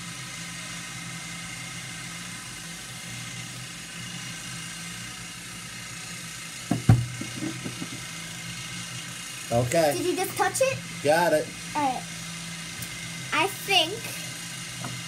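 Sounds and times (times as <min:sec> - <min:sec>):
jars knocking on wooden table: 0:06.7 - 0:08.0.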